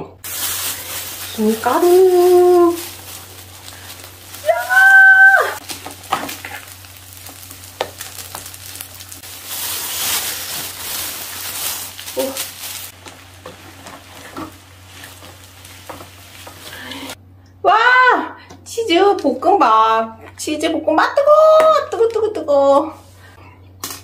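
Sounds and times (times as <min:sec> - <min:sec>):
plastic bag crinkling: 0:00.2 - 0:17.2
rice sizzling in a pan: 0:00.2 - 0:17.2.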